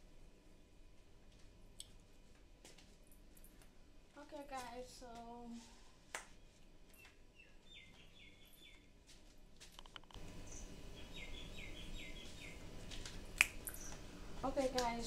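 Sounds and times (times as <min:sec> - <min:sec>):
bird chirping: 0:07.0 - 0:08.9, 0:10.3 - 0:12.7, 0:13.6 - 0:14.1.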